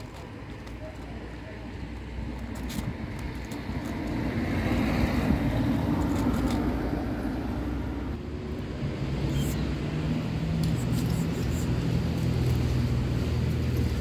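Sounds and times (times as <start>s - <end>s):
motor vehicle passing: 3.4s - 14.0s.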